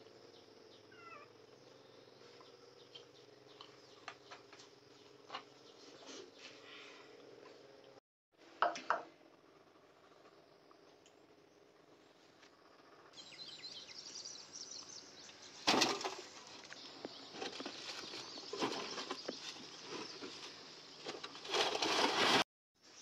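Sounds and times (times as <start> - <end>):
small birds chirping: 0.0 - 8.0, 10.0 - 21.7
metal wheelbarrow scraping and clattering: 17.2 - 22.4.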